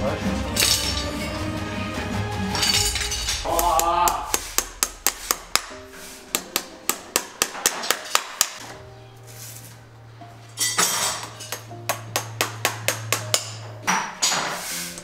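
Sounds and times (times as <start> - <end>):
background music: 0.0 - 15.0
hammer tapping metal nails: 6.4 - 8.6, 11.2 - 14.4.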